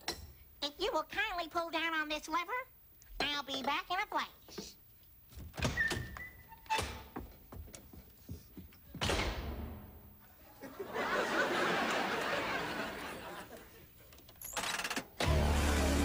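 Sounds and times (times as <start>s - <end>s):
studio audience laughing: 10.5s - 13.9s.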